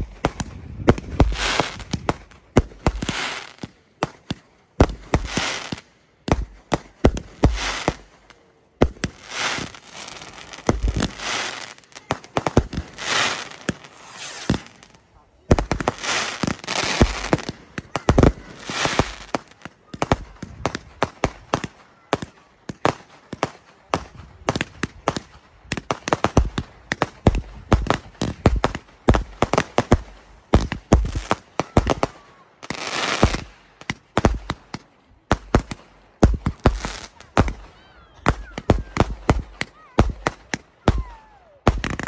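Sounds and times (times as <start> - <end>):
fireworks hissing: 0.0 - 3.6, 8.9 - 21.7
fireworks bangs and cracks: 0.0 - 42.0.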